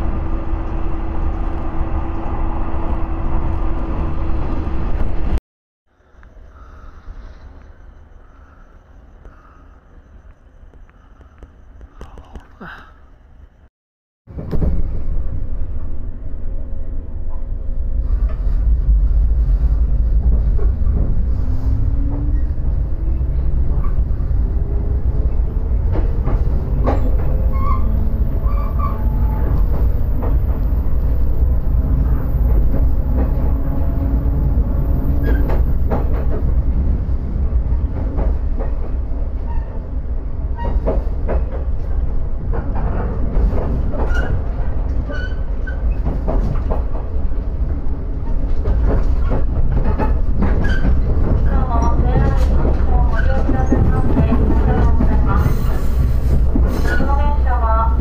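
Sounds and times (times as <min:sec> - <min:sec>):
train low rumble: 0:00.0 - 0:13.7, 0:14.3 - 0:58.0
wheels running on rails: 0:40.6 - 0:57.9.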